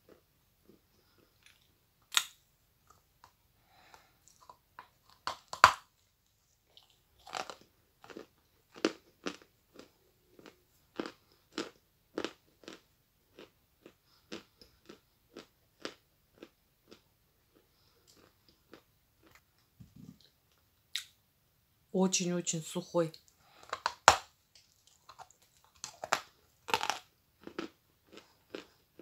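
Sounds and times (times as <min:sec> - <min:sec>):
chalk crunching when bitten: 0:23.7 - 0:28.7.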